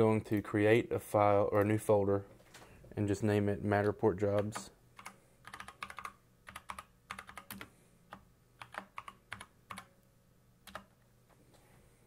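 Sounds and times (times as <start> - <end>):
computer keyboard typing: 3.8 - 10.0, 10.6 - 11.0.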